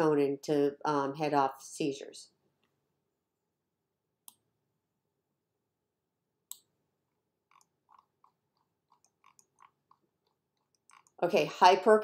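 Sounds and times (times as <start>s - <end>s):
computer mouse clicking: 7.5s - 11.2s
mouse wheel scrolling clicks: 7.5s - 11.2s.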